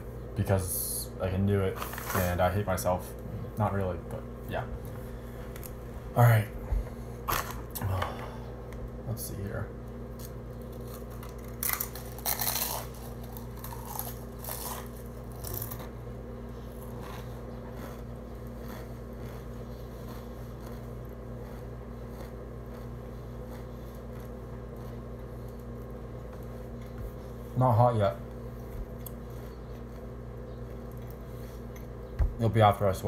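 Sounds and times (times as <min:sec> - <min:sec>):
low background hum: 0:00.0 - 0:33.0
crunching tortilla chips: 0:10.1 - 0:16.0
chewing: 0:16.7 - 0:27.2, 0:28.8 - 0:31.9.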